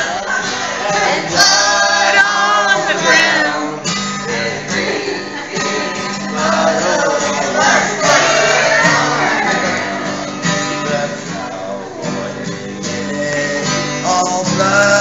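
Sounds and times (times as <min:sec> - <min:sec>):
acoustic guitar: 0:00.0 - 0:15.0
woman singing along: 0:00.1 - 0:10.0
man singing: 0:00.7 - 0:15.0.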